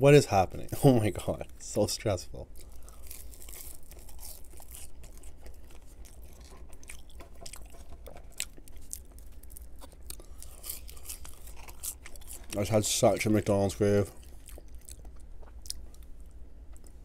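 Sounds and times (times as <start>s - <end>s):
chewing with wet mouth clicks: 2.6s - 12.7s, 14.1s - 17.0s.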